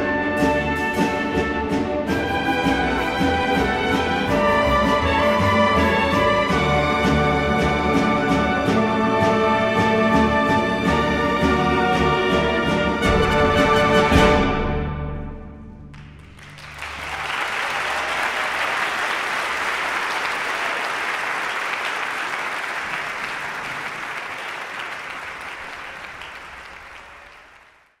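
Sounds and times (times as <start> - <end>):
audience applause: 16.0 - 28.0.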